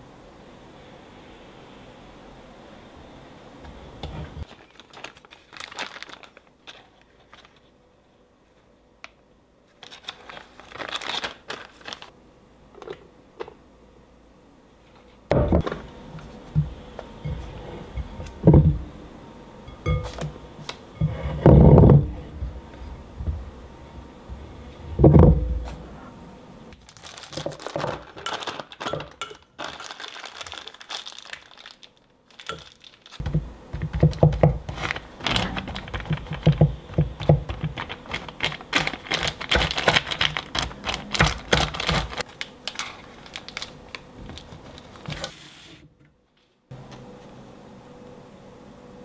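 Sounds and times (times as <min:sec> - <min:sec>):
plastic piping bag crinkling: 0:04.4 - 0:07.7, 0:09.8 - 0:12.1, 0:26.8 - 0:45.2.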